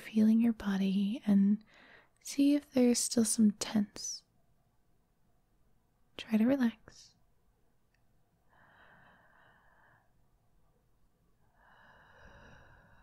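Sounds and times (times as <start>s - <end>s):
woman breathing slowly: 1.6s - 2.2s, 8.4s - 10.4s, 11.4s - 13.0s.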